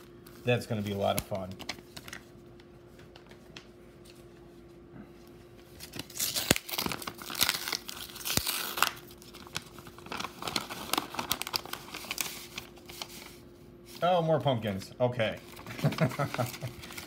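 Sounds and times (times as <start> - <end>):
paper rustling: 0.2 - 4.5, 5.8 - 14.6, 15.4 - 17.0
paper envelope ripping: 5.8 - 13.4, 15.4 - 17.0.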